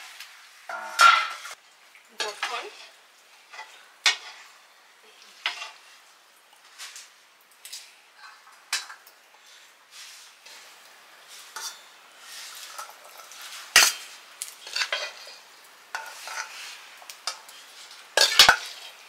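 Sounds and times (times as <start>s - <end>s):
metal spoon scraping cookware: 14.6s - 15.3s, 18.2s - 18.9s.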